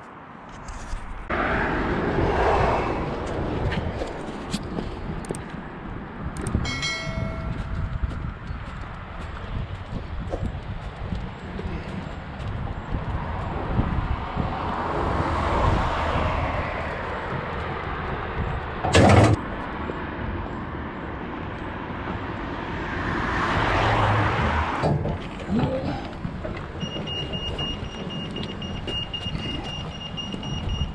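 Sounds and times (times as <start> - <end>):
cars passing: 1.1 - 30.9
loud short clatter: 18.8 - 19.4
crossing signal beeps: 26.8 - 30.9.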